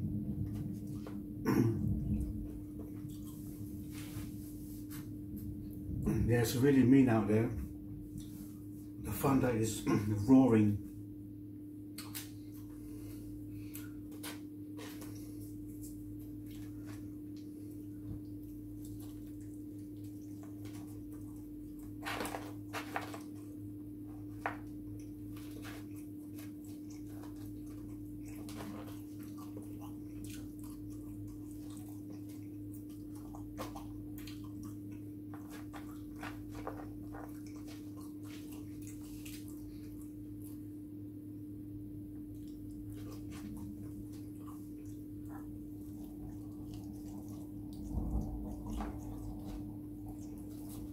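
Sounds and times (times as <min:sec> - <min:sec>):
steady low hum: 0:00.0 - 0:50.9
chewing: 0:12.0 - 0:40.8, 0:42.2 - 0:50.9.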